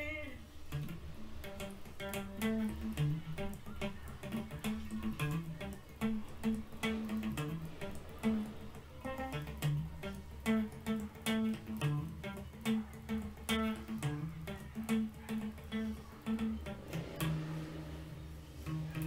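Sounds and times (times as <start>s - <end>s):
electric guitar riff: 0.0s - 19.0s
steady low hum: 0.0s - 19.0s.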